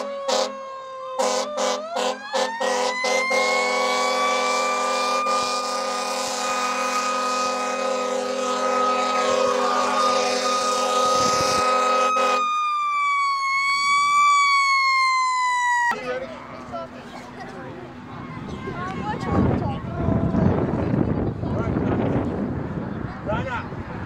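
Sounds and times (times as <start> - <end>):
siren wailing: 0.0 - 16.1.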